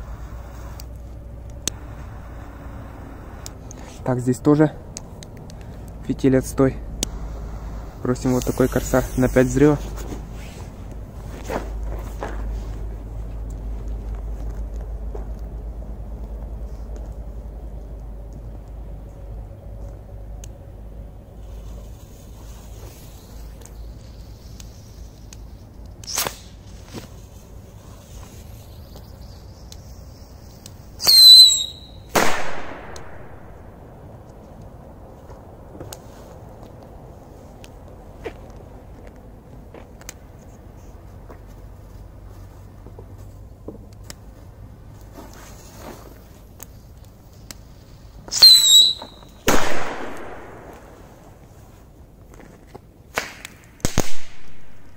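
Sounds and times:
shrill firework whistle: 0:31.0 - 0:32.1, 0:48.3 - 0:49.4
firecracker bangs: 0:31.0 - 0:33.6, 0:48.3 - 0:51.2, 0:53.1 - 0:54.8.

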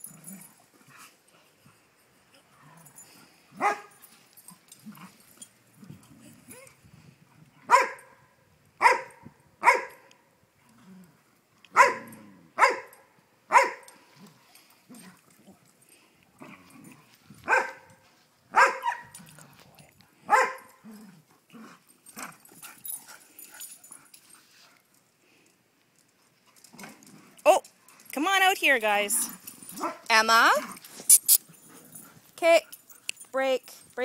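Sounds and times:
dogs barking: 0:03.6 - 0:03.9, 0:07.7 - 0:08.2, 0:08.8 - 0:10.0, 0:11.8 - 0:13.9, 0:17.5 - 0:19.2, 0:20.3 - 0:20.8.

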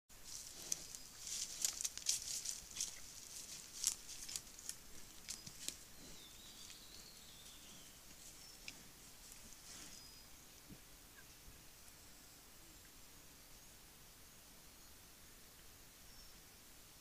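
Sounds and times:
panda walking on loose stones: 0:00.3 - 0:05.9.

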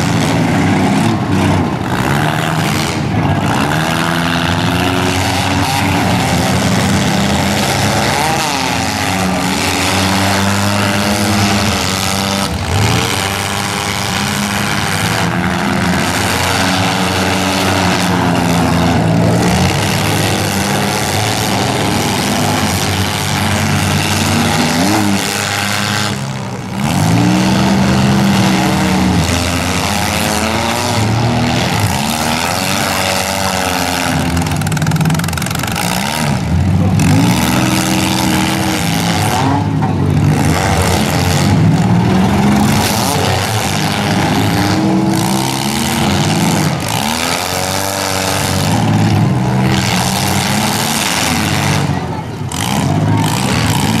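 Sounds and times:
car engines revving: 0:00.0 - 0:54.0.

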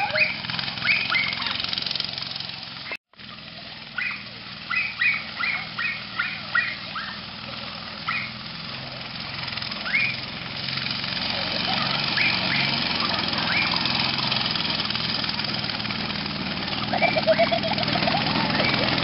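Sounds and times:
short high rising calls: 0:00.0 - 0:01.8, 0:03.9 - 0:07.3, 0:09.7 - 0:14.5
go-kart engine running: 0:00.0 - 0:19.0.

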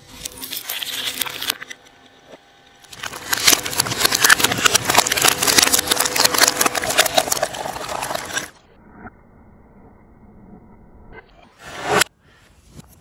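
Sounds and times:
metal shredder crunching: 0:00.1 - 0:08.6.

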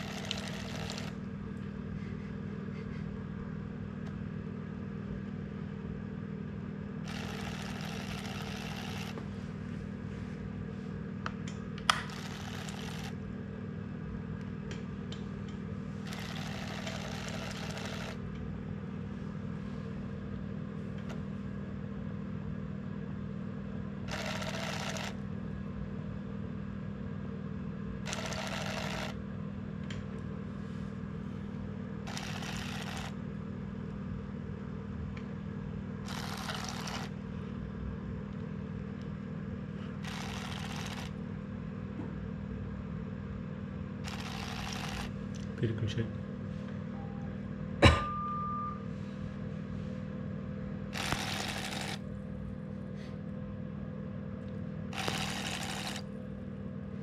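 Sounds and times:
small motor whirring: 0:00.0 - 0:01.2, 0:07.0 - 0:09.2, 0:11.9 - 0:13.2, 0:16.0 - 0:18.2, 0:24.1 - 0:25.2, 0:28.1 - 0:29.2, 0:32.1 - 0:33.2, 0:36.1 - 0:37.2, 0:40.0 - 0:41.2, 0:44.0 - 0:45.2, 0:50.9 - 0:52.0, 0:54.9 - 0:56.1.

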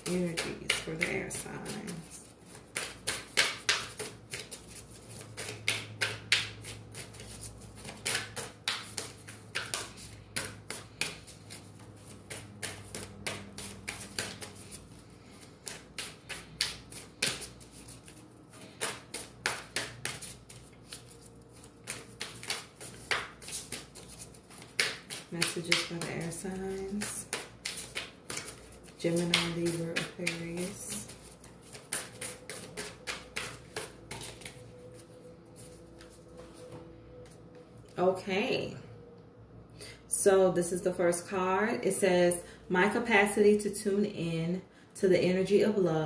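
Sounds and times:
cards being shuffled: 0:00.0 - 0:36.8.

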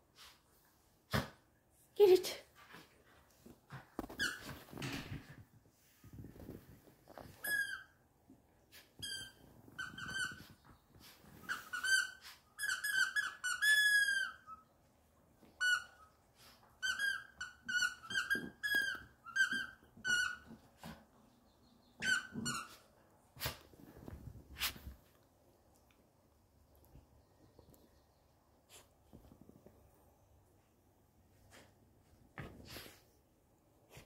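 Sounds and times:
dog toy squeaking: 0:07.4 - 0:08.0, 0:09.0 - 0:10.6, 0:11.4 - 0:14.6, 0:16.8 - 0:20.6, 0:22.0 - 0:22.8.

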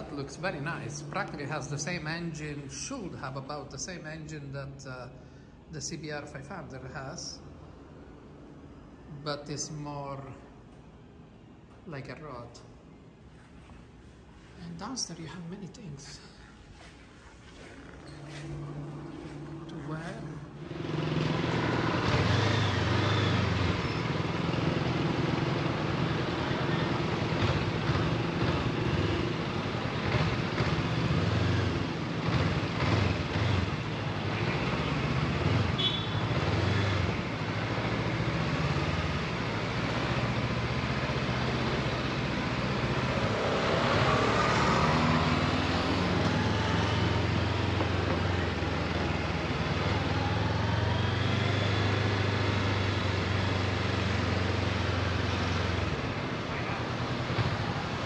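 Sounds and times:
road and traffic noise: 0:00.0 - 0:58.0.

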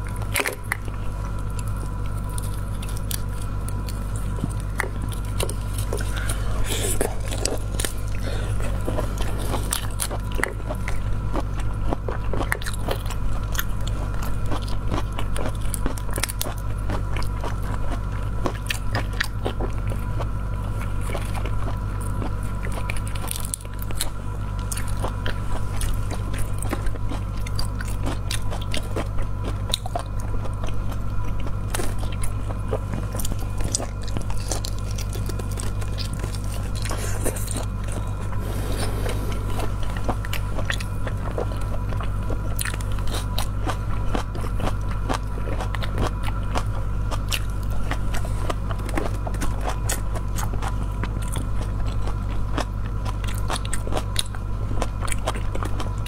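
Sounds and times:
low steady hum: 0:00.0 - 0:56.0
wet chewing and biting: 0:00.0 - 0:56.0.

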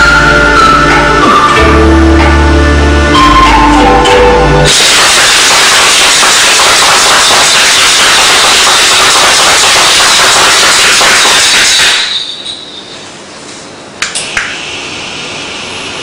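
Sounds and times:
loud steady rushing noise: 0:00.0 - 0:12.4.

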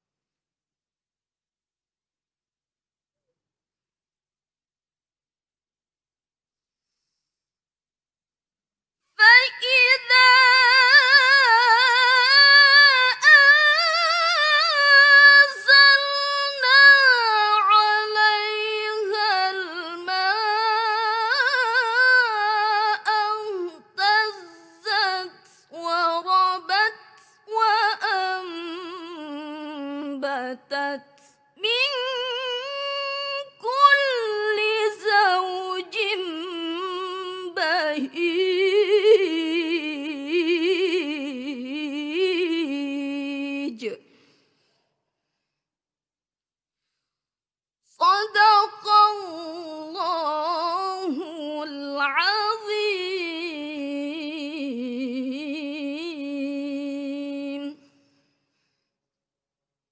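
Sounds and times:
girl reciting in melodic style: 0:09.2 - 0:41.3, 0:48.0 - 0:57.8.

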